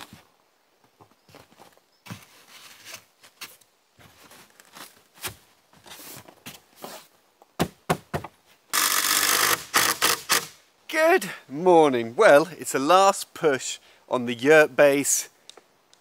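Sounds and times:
foam boards knocking and scraping: 7.6s - 8.4s
cordless impact driver running: 8.8s - 10.5s.

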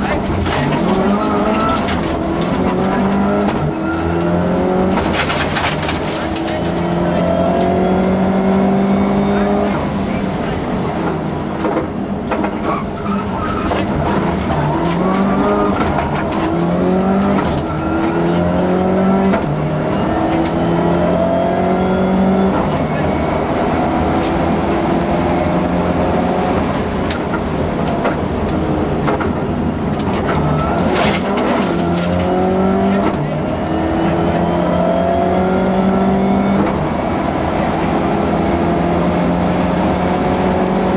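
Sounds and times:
car engine shifting gears: 0.0s - 40.9s
sharp clicks and knocks: 27.1s - 33.7s.

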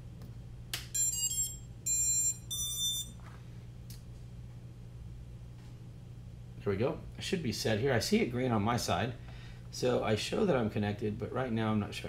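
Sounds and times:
motor start-up beeps: 0.9s - 3.2s.

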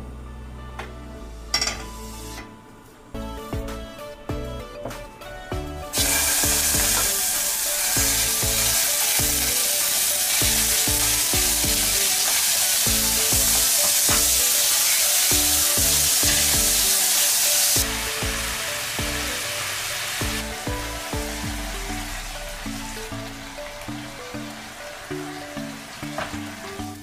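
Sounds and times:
meat sizzling in frying pan: 5.9s - 27.0s.

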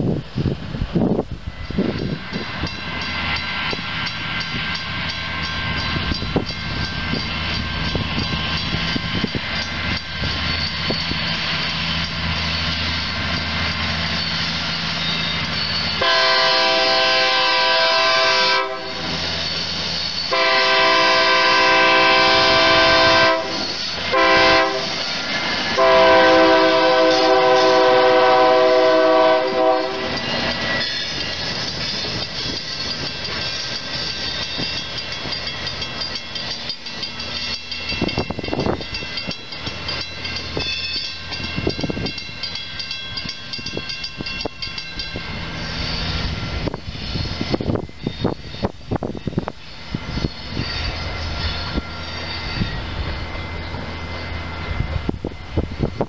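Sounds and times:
diesel locomotive running: 0.0s - 56.0s
locomotive air horn blasts: 16.0s - 19.2s, 20.3s - 25.0s, 25.7s - 30.2s.

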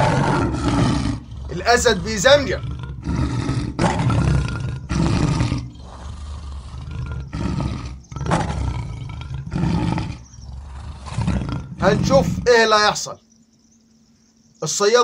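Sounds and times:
lion growling roars: 0.0s - 12.6s.

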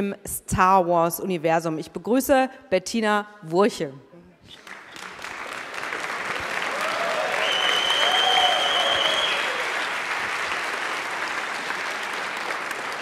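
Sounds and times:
audience applauding: 4.6s - 13.0s
people cheering: 4.6s - 13.0s
high whistle: 7.3s - 9.6s.

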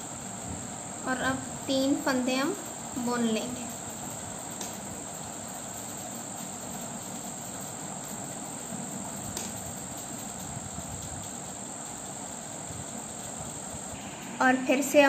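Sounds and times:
steady background hiss: 0.0s - 15.0s
high-pitched whine: 13.8s - 15.0s.

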